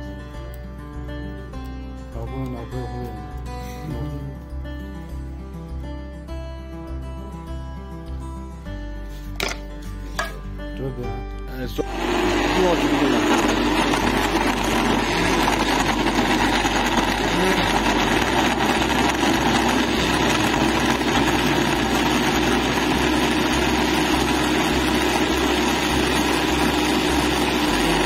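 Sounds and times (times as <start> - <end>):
blender motor whirring: 11.8 - 28.0.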